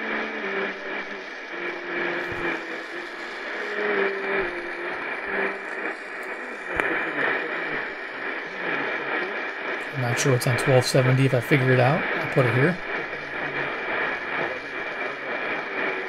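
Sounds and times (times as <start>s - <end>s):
faint wavering radio tones: 0.0s - 16.0s
radio static and hiss: 0.0s - 16.0s.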